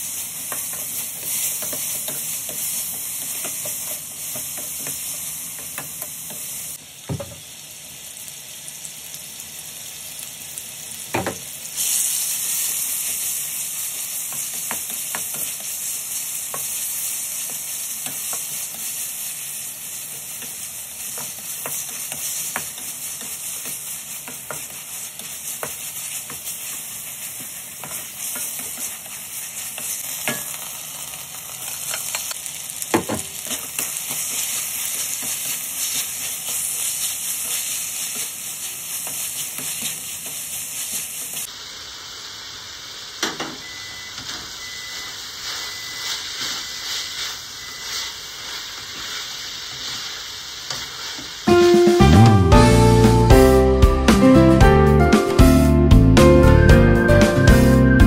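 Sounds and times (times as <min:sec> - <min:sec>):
food sizzling in a wok: 0:00.0 - 0:58.0
knocks against the pan: 0:07.1 - 0:07.4, 0:11.1 - 0:11.4, 0:32.9 - 0:33.3.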